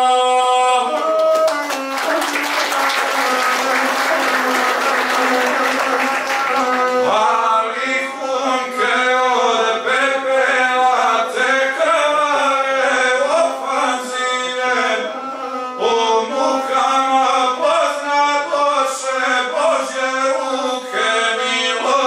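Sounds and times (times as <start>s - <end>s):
man singing: 0.0s - 3.7s, 5.2s - 22.0s
bowed single-string fiddle drone: 13.7s - 16.7s.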